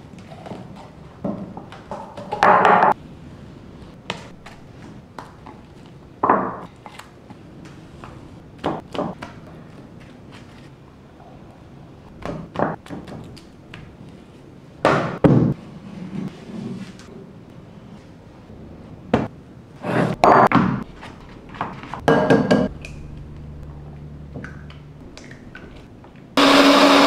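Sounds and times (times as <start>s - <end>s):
spatula scraping: 19.8s - 22.1s.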